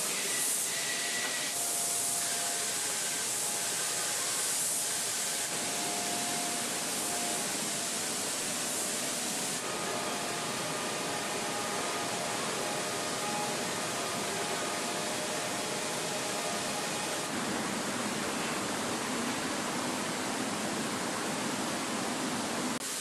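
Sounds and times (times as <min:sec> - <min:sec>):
hiss of paint spray: 0:00.0 - 0:17.3, 0:22.8 - 0:23.0.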